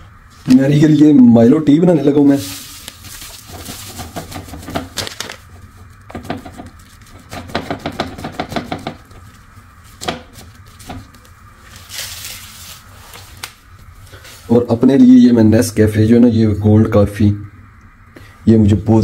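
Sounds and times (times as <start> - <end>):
plastic packet crackling: 2.4 - 4.0, 4.8 - 5.5, 11.1 - 13.6.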